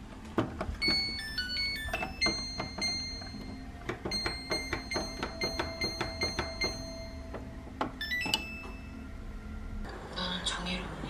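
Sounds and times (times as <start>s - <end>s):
control panel beeping and clicking: 0.6s - 9.0s.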